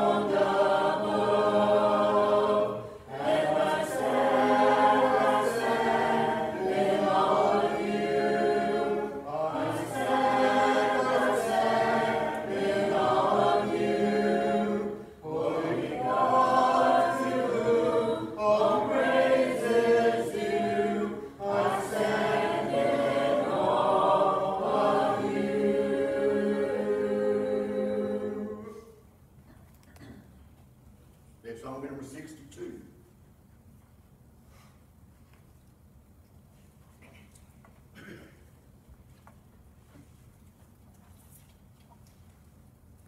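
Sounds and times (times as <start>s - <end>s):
congregation singing a hymn: 0.0s - 29.0s.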